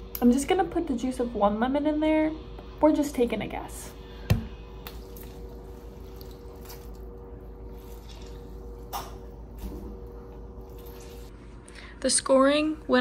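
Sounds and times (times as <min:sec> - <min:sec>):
faint steady hum: 0:00.0 - 0:13.0
juice squelching and dripping: 0:04.8 - 0:11.3.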